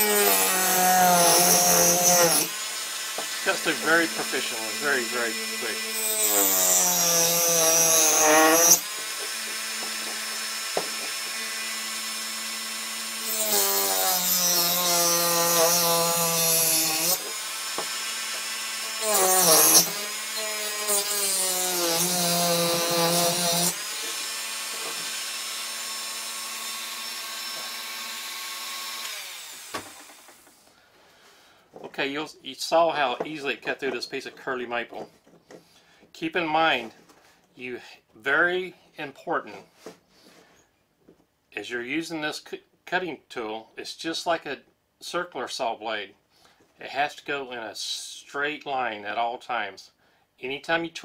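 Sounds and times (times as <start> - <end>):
saw blade rasping into wood: 0.0 - 12.3, 13.1 - 29.9
rotary tool whine: 0.0 - 14.0.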